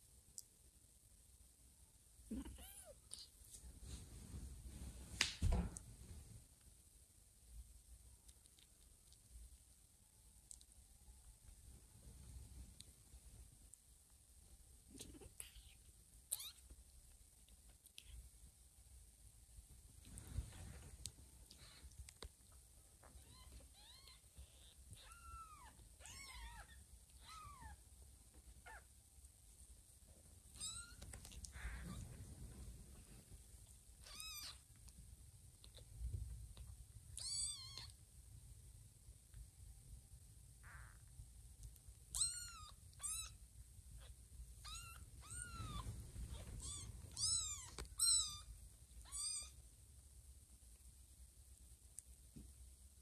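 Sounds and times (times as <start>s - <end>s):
soft rustle: 2.3s - 38.3s, 40.9s - 52.7s
kittens mewing: 30.6s - 32.1s.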